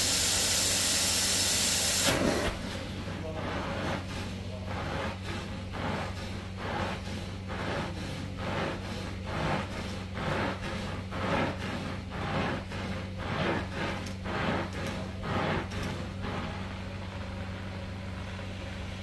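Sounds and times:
hissing suction of extraction wand: 0.0s - 2.8s
low machine hum: 0.0s - 19.0s.

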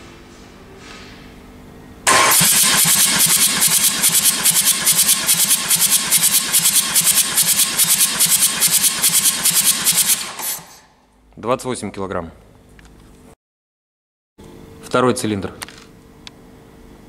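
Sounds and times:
starter motor cranking engine: 2.1s - 10.8s.

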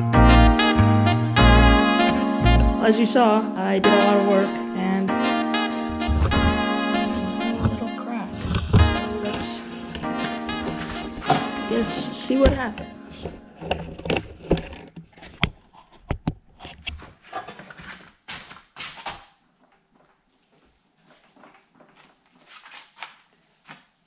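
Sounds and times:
metal knocks clicks and scrapes: 8.4s - 18.5s.

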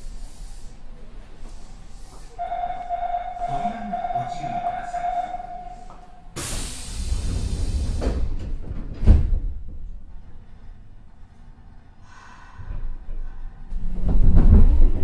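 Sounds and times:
air hiss from train doors: 0.0s - 2.4s, 5.6s - 8.8s
train doors thudding shut: 2.4s - 9.9s.

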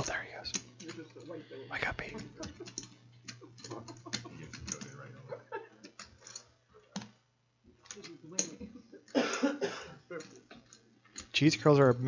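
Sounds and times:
murmured voices: 0.0s - 5.6s.

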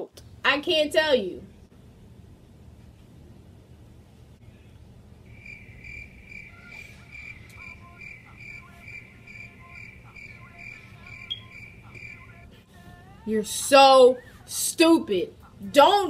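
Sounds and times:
crickets chirping: 5.2s - 12.4s.

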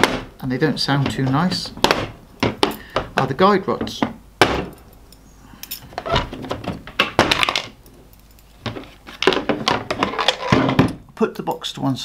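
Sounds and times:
metal scraping on plastic: 8.6s - 10.9s.

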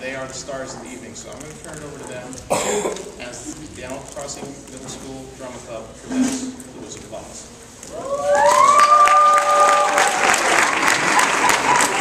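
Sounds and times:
long held whoops: 7.9s - 10.9s
audience applauding and cheering: 7.9s - 12.0s.

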